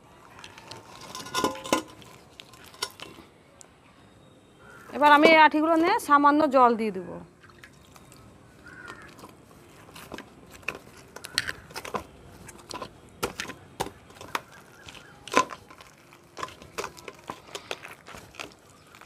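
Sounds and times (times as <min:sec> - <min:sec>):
hands squelching wet seeds: 0:07.4 - 0:19.0.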